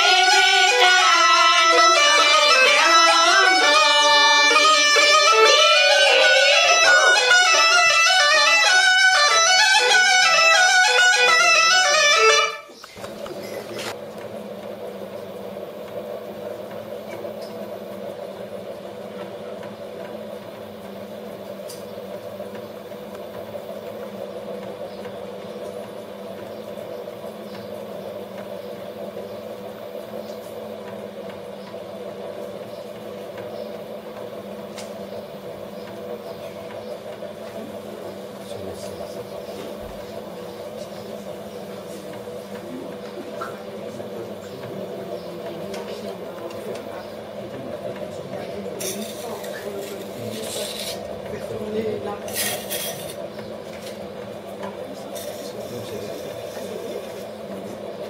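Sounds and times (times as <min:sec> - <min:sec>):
folk music: 0:00.0 - 0:12.8
potter's wheel motor humming: 0:00.0 - 0:58.0.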